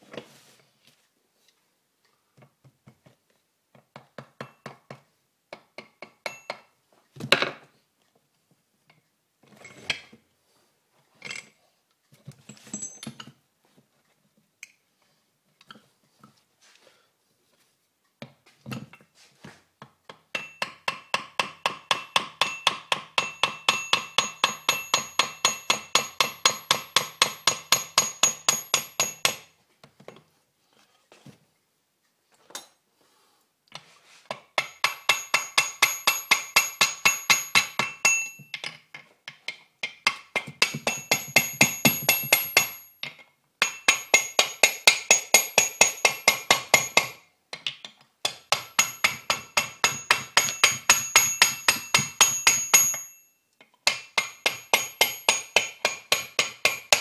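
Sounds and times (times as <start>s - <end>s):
hammer tapping on metal: 4.2s - 6.7s, 20.1s - 29.5s, 34.3s - 57.0s
metal ringing: 22.4s - 29.4s, 34.8s - 38.8s, 48.6s - 53.3s.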